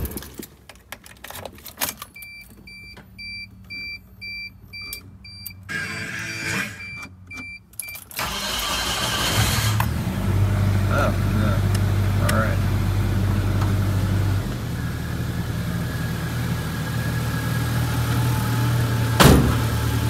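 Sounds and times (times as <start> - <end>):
dashboard warning chime: 2.2 - 8.1
starter motor cranking: 8.2 - 10.0
car engine running: 8.2 - 20.0.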